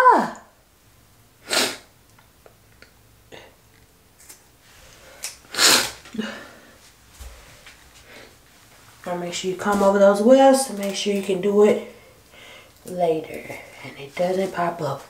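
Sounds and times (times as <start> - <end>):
breathy puffs of air: 11.9 - 12.8.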